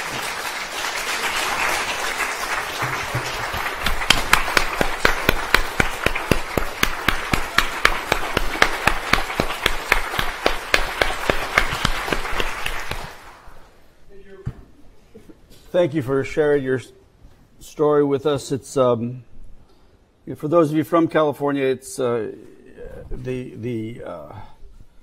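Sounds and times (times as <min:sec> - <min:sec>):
audience applauding: 0:00.0 - 0:13.5
loud evenly paced claps: 0:00.0 - 0:13.5.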